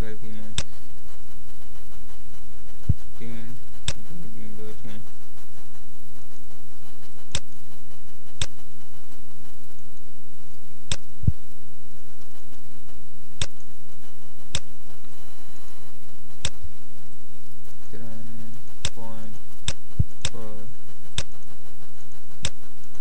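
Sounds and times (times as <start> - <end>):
low electrical hum: 0.0 - 23.0
computer mouse clicking: 3.8 - 4.1, 7.2 - 7.5, 10.9 - 11.4, 13.4 - 13.7, 14.4 - 14.7, 16.3 - 16.6, 18.8 - 20.5.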